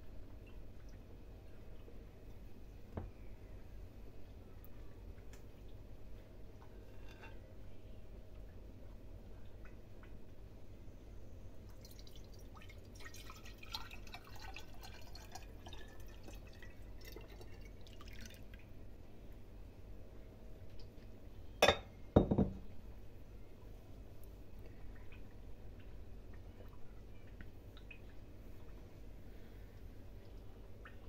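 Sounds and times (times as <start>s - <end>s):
liquid trickling into a glass jar: 11.7s - 18.7s.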